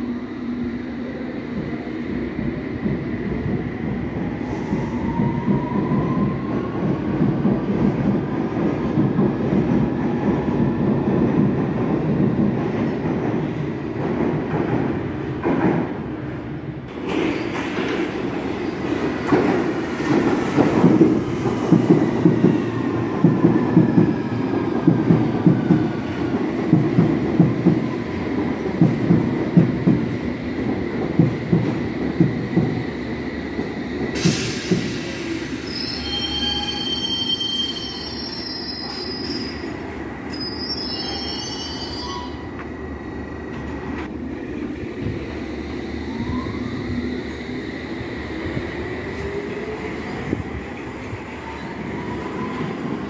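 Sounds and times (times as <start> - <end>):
high-pitched wheel squeal: 35.6 - 39.6.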